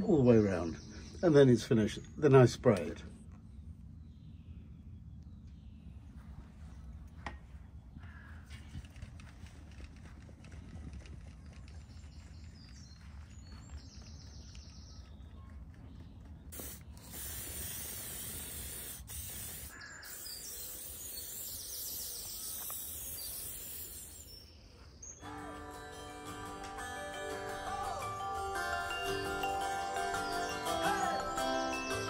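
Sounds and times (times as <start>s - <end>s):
aerosol spray can hissing: 16.5s - 24.4s.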